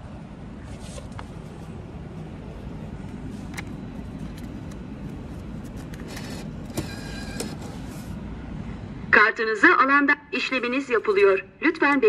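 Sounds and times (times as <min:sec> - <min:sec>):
steady low rumble: 0:00.0 - 0:06.8, 0:07.6 - 0:11.6
banknote acceptor whirr: 0:05.9 - 0:07.8.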